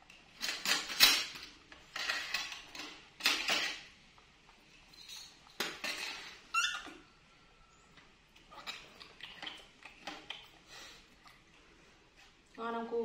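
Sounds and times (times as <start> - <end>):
dishes and cutlery clattering: 0.4 - 3.9, 4.9 - 6.4.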